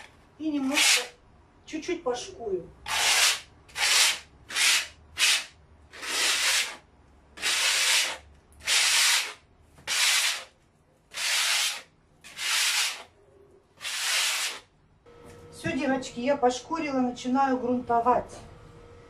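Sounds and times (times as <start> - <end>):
sandpaper rubbing on wall: 0.6 - 1.2, 2.9 - 6.8, 7.4 - 10.5, 11.1 - 13.1, 13.8 - 14.7.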